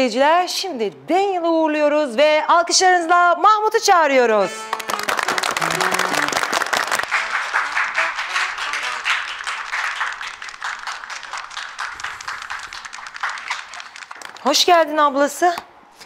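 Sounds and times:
background music: 0:04.3 - 0:06.4, 0:07.1 - 0:09.3
audience applause: 0:04.7 - 0:14.4.

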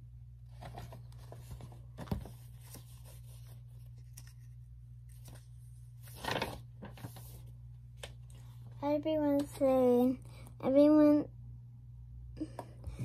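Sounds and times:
paper pages rustling: 0:00.5 - 0:08.8.

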